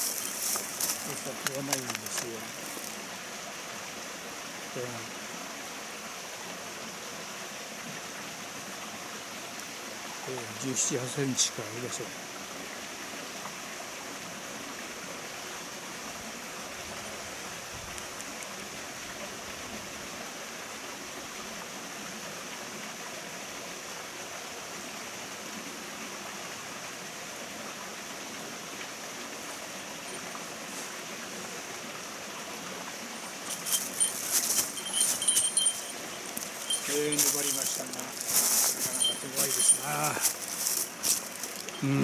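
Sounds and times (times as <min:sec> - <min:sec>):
mountain stream running: 0:00.0 - 0:42.0
fishing gear clinking: 0:33.2 - 0:41.9.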